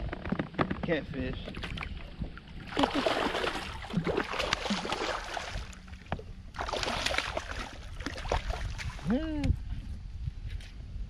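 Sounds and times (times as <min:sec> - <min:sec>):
water splashing and sloshing: 0:00.0 - 0:09.8
sharp splashes: 0:02.6 - 0:05.9, 0:06.5 - 0:09.1.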